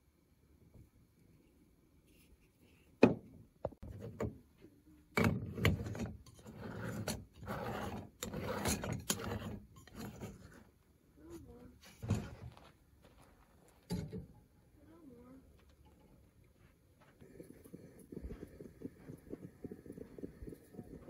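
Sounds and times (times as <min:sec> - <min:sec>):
metal threads scraping: 0:05.8 - 0:10.7.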